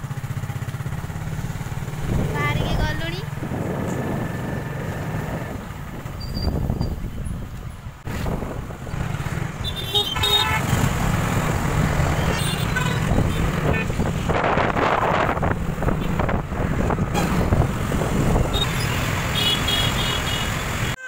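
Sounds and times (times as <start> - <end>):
road noise rumble: 0.0 - 21.0
wind buffeting microphone: 1.0 - 9.7, 10.7 - 18.7
vehicle horn beeping: 9.7 - 10.8, 12.2 - 14.0, 18.5 - 21.0.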